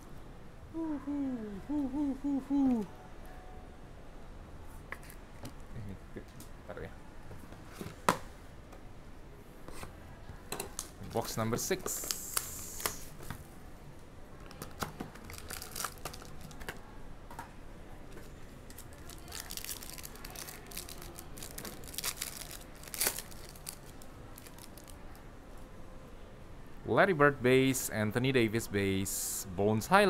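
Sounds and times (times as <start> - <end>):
wrapper tearing and crinkling: 15.2 - 16.7, 18.7 - 25.0.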